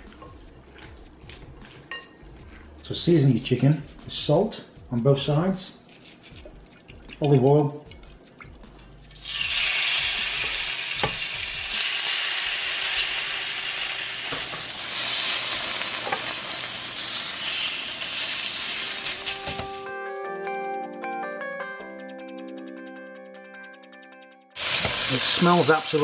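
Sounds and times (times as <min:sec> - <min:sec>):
music: 0:00.0 - 0:26.0
chicken sizzling on grill pan: 0:09.2 - 0:19.9, 0:24.6 - 0:26.0.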